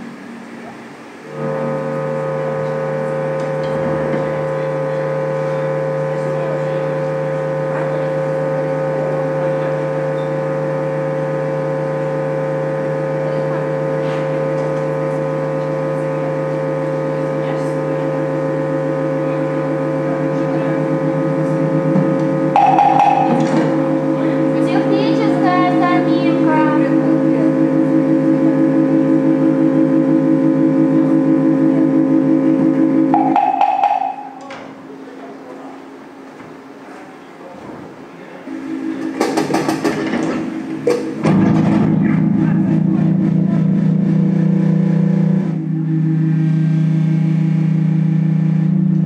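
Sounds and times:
band playing sustained drone: 0.0s - 35.0s, 38.4s - 49.0s.

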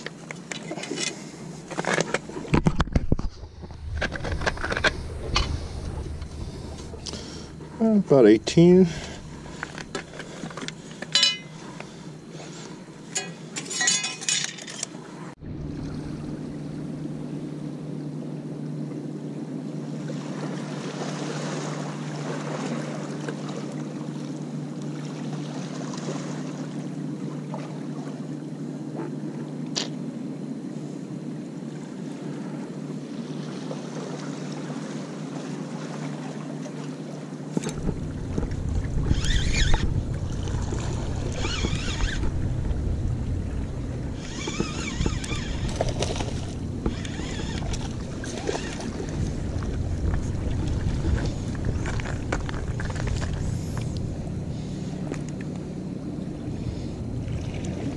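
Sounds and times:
low hum: 0.0s - 57.9s
wind buffeting microphone: 2.5s - 10.5s, 37.6s - 57.9s
water splashing: 33.2s - 57.9s.

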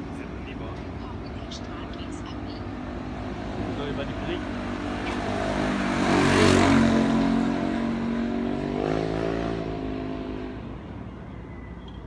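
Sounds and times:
motorbike passing: 0.0s - 10.9s.

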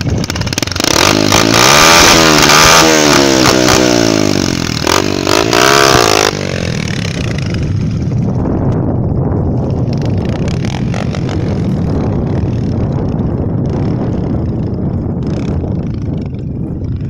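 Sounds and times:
tyres over loose gravel: 0.0s - 2.6s
dirt bike engine running: 0.0s - 17.0s
wind rumble on microphone: 0.0s - 17.0s.

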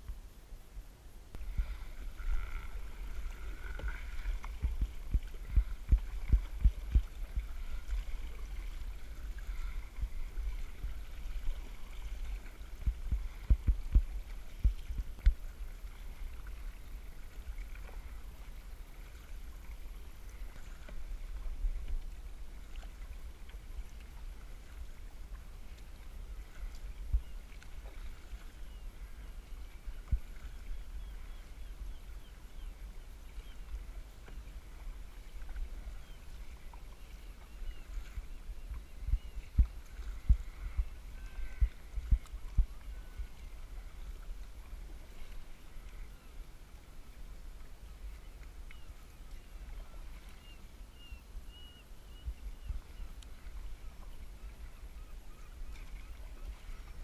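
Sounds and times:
dull low thumps: 1.3s - 8.1s, 12.8s - 15.4s
paddle dipping in water: 1.3s - 57.0s.

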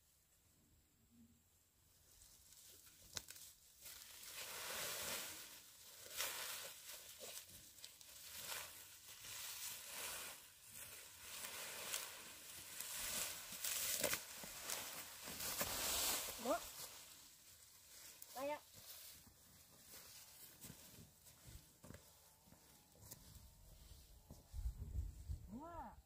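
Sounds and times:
cut grass rustling: 2.1s - 24.0s
grass stems snapping: 2.6s - 4.1s, 11.3s - 15.6s.

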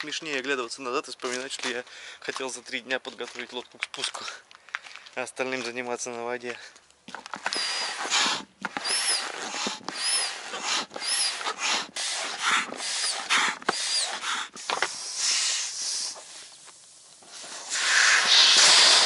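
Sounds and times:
soft air hiss: 4.2s - 19.0s
high squeak of pump: 7.4s - 15.4s, 17.7s - 19.0s
foot pump strokes rushing air: 7.4s - 16.6s, 17.2s - 19.0s.

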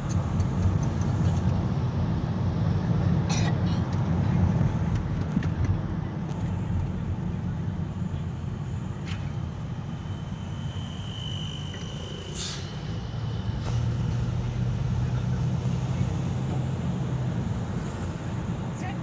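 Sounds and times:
car engine and road noise: 0.0s - 19.0s.

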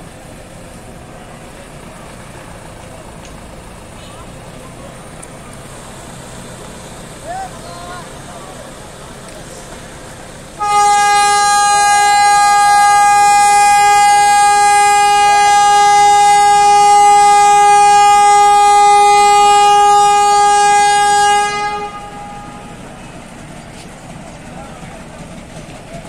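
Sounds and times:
locomotive air horn blast: 10.6s - 23.1s.

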